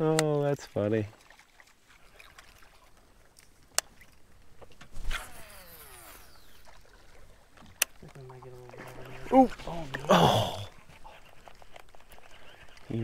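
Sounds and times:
fishing rod cast swish: 0:04.8 - 0:06.9
sharp reel clicks: 0:05.0 - 0:06.8
reel spool whining: 0:05.0 - 0:07.9.

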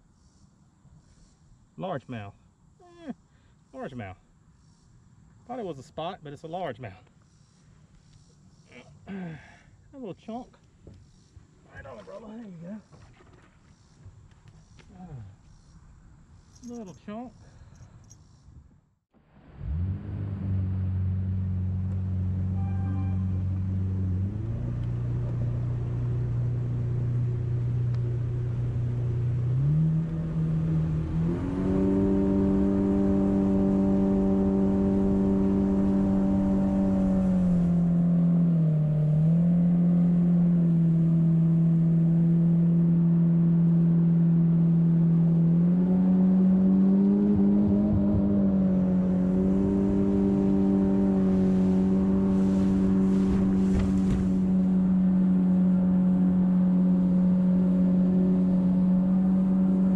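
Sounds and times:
jet boat motor running: 0:48.7 - 0:59.9.

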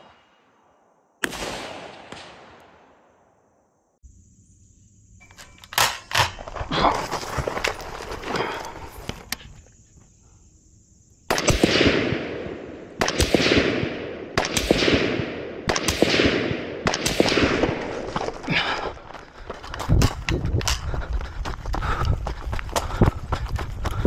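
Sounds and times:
rifle shots echoing: 0:01.2 - 0:03.0, 0:11.3 - 0:17.9.

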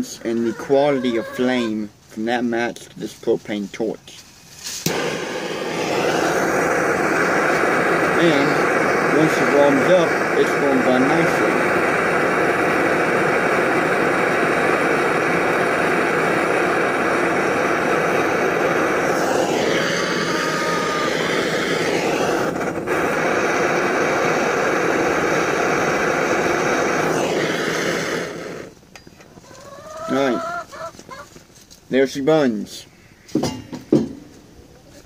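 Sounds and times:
propane torch hissing: 0:04.8 - 0:28.9.

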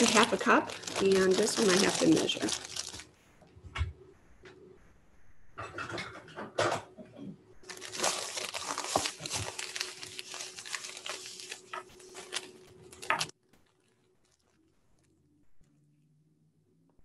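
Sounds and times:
plastic bag crinkling: 0:00.0 - 0:03.2, 0:07.6 - 0:15.2.

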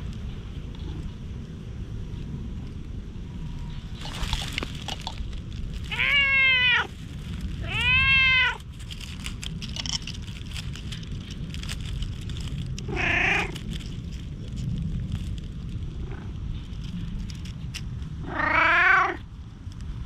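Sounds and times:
cat meowing: 0:05.9 - 0:07.0, 0:07.6 - 0:08.7, 0:12.8 - 0:13.6, 0:18.2 - 0:19.2.

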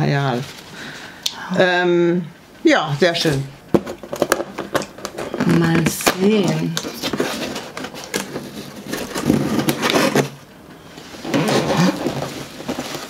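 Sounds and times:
cardboard and paper rustling: 0:03.0 - 0:13.0.

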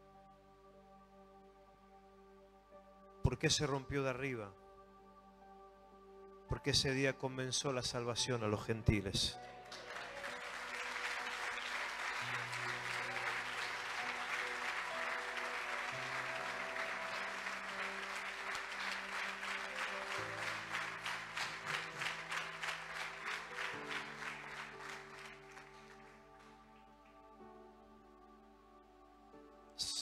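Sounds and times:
sustained keyboard chords: 0:00.0 - 0:30.0
congregation applauding: 0:09.4 - 0:27.5
rhythmic clapping: 0:09.5 - 0:27.4.

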